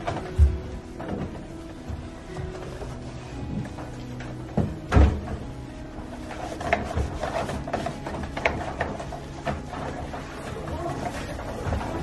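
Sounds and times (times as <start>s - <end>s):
cloth rubbing on door: 0.0s - 12.0s.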